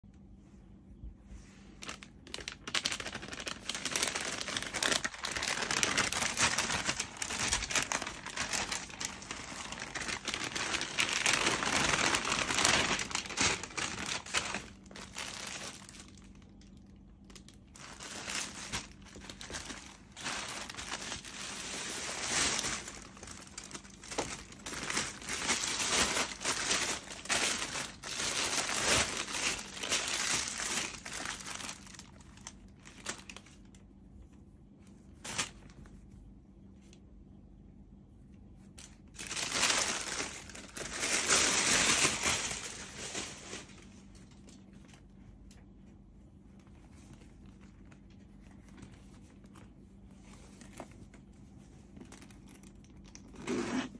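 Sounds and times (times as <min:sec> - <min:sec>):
plastic packaging crinkling: 0:01.8 - 0:33.8, 0:38.7 - 0:45.2.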